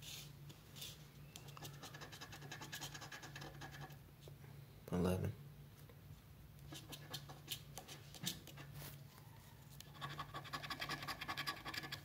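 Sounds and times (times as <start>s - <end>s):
fingernail scratching ticket: 9.9s - 12.0s.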